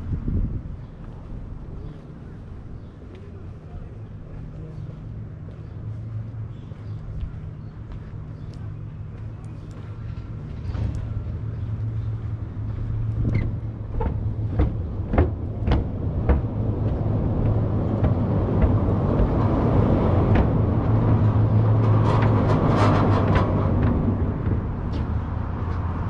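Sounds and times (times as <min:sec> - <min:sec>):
tyres humming on steel grate: 0:10.0 - 0:25.3.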